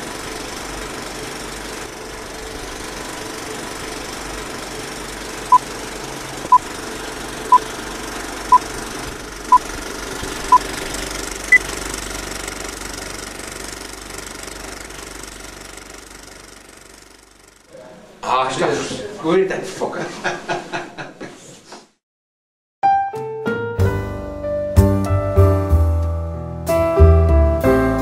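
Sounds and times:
film projector clatter: 0:00.0 - 0:17.7.

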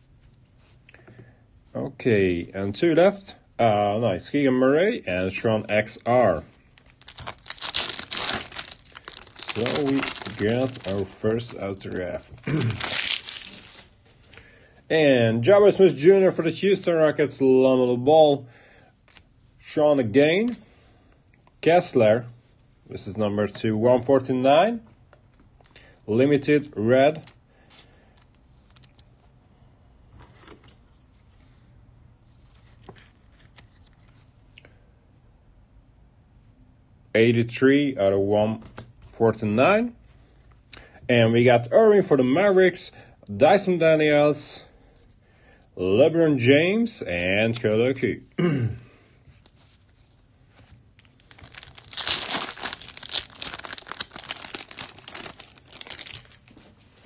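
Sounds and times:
foil wrapper tearing and crinkling: 0:06.8 - 0:13.9, 0:51.0 - 0:56.7.

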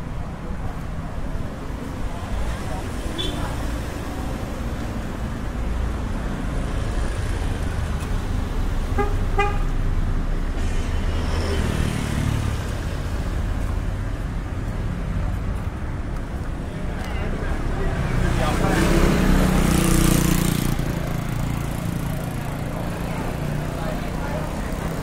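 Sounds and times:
road traffic rumble: 0:00.0 - 0:25.0
vehicle horn toots: 0:09.0 - 0:09.7.

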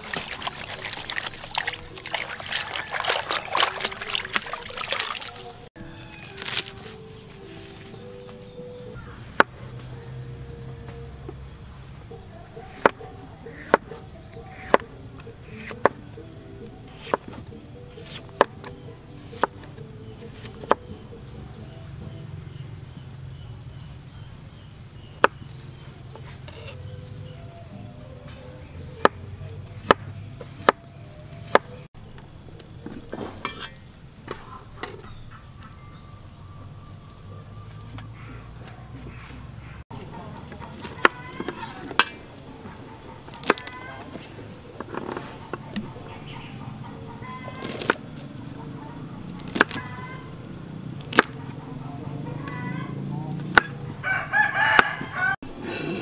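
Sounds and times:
rooster crowing: 0:02.0 - 0:07.1, 0:54.0 - 0:55.4
knife chopping on cutting board: 0:12.7 - 0:14.9, 0:16.9 - 0:18.6, 0:19.3 - 0:19.6
soft knocks and scrapes: 0:32.8 - 0:35.1.

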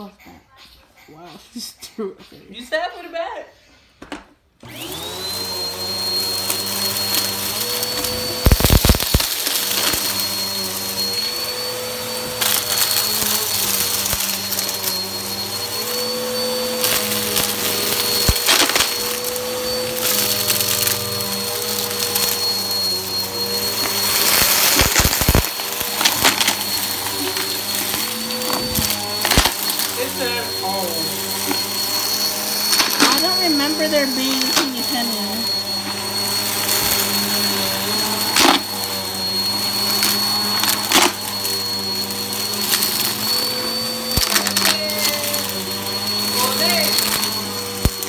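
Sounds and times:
vacuum cleaner motor whine: 0:04.0 - 0:48.0
debris crackling in vacuum: 0:08.4 - 0:10.2, 0:23.4 - 0:31.9.

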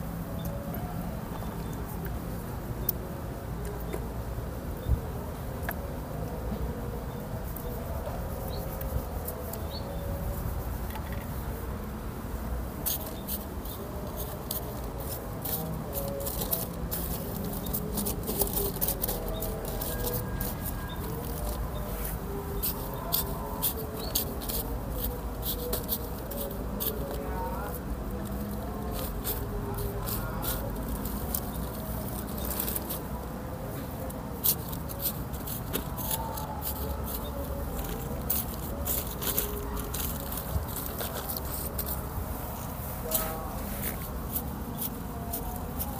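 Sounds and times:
soil crackling in plastic bags: 0:12.8 - 0:33.2, 0:33.9 - 0:45.9.

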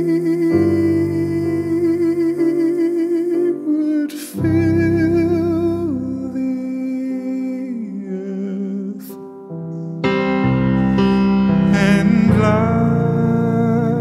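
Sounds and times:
man singing wordless note: 0:00.0 - 0:09.6, 0:11.5 - 0:14.0
soft piano chords: 0:00.0 - 0:14.0
singer breathing: 0:10.6 - 0:11.6.

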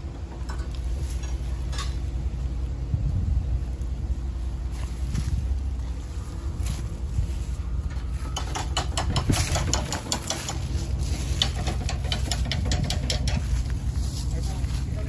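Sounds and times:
wind rumble on microphone: 0:00.0 - 0:15.0
footsteps through dry leaves: 0:04.3 - 0:08.3, 0:10.4 - 0:11.9, 0:13.4 - 0:15.0.

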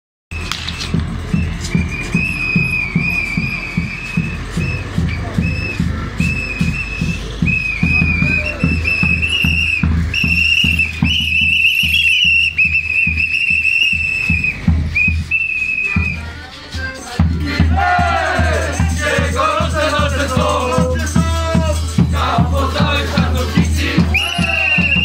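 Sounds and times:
rhythmic low thumping: 0:00.3 - 0:25.0
whistle blasts: 0:00.6 - 0:16.4, 0:24.0 - 0:25.0.

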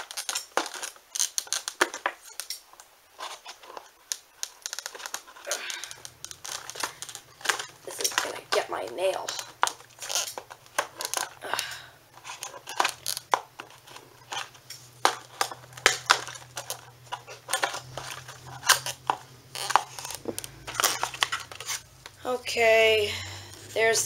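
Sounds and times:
toy packaging crinkling and snapping: 0:00.0 - 0:24.0.

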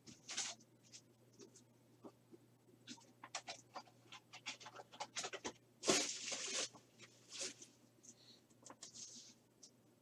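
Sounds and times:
foil card packs crinkling: 0:04.4 - 0:07.7.

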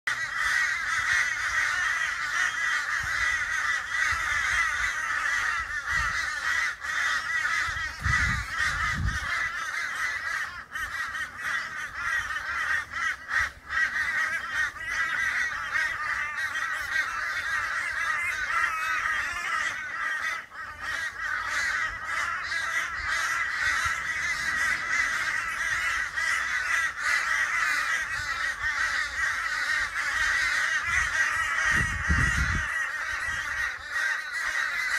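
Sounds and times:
crows cawing: 0:00.1 - 0:34.9.

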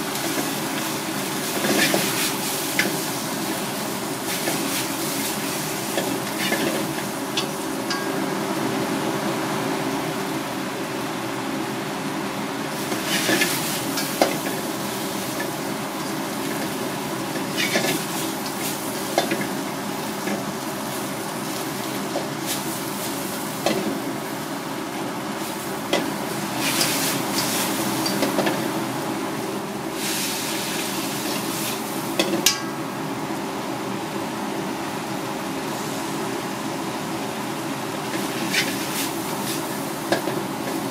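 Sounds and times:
vegetables sizzling in a wok: 0:00.0 - 0:40.9
chopsticks tapping a wok: 0:07.4 - 0:08.4.

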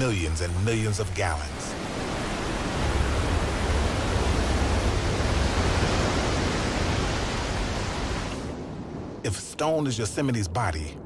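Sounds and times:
waterfall rushing: 0:00.0 - 0:08.5.

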